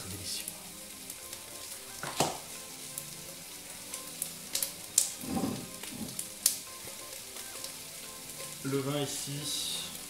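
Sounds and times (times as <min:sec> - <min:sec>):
meat sizzling in oil: 0:00.0 - 0:10.0
sharp crackling pops: 0:01.0 - 0:03.1, 0:03.8 - 0:07.8.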